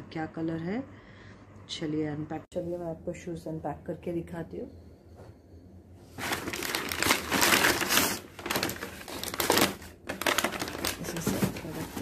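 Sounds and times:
paper bag crinkling: 6.2 - 12.0.

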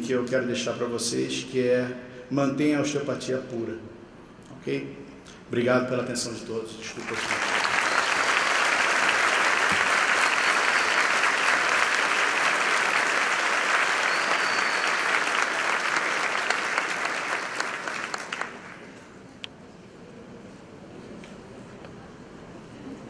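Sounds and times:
audience applauding: 7.0 - 19.0.

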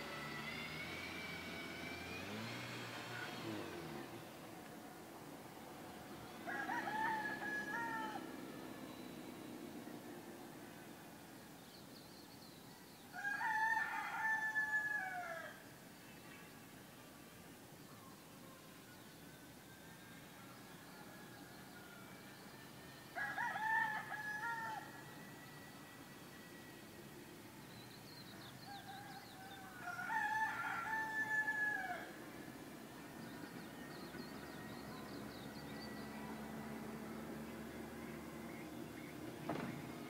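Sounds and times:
rooster crowing: 6.4 - 8.6, 13.1 - 15.6, 23.1 - 25.0, 28.4 - 32.2.

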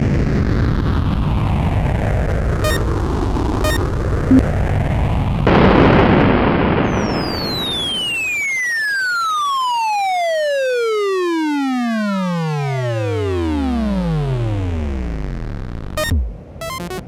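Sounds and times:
synthesizer tones falling in pitch: 2.6 - 2.9, 3.6 - 4.4, 10.3 - 17.0.

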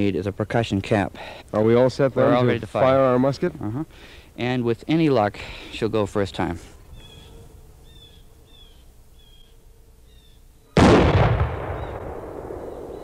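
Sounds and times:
musket shot with echo: 10.8 - 13.0.

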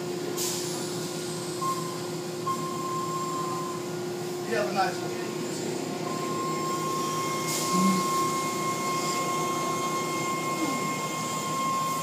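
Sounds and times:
car wash motors whirring: 0.0 - 12.0
low hum dropping in pitch: 6.2 - 11.4.

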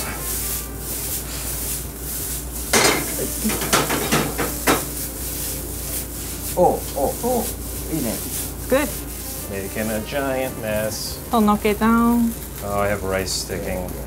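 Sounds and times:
metal ladle scraping a pan: 0.0 - 11.1
rice sizzling in a frying pan: 0.0 - 14.0.

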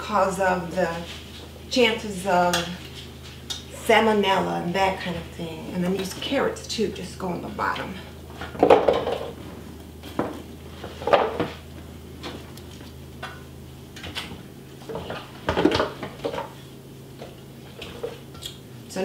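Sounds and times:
knocks and clatters in pan: 14.8 - 16.5.

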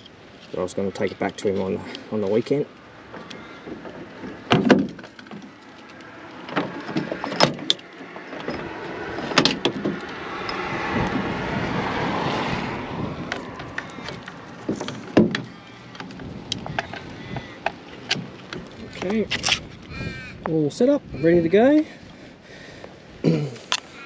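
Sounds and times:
handling knocks and clicks: 3.1 - 11.2, 13.3 - 19.8.

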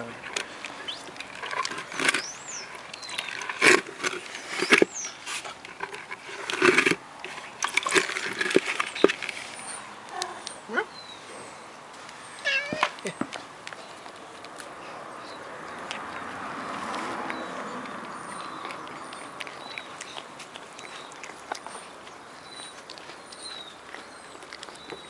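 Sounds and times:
cat chewing and smacking: 12.5 - 25.0.

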